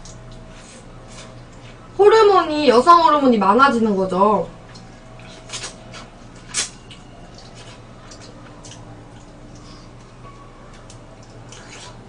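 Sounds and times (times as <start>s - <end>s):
lip smacks and chewing: 4.7s - 12.0s.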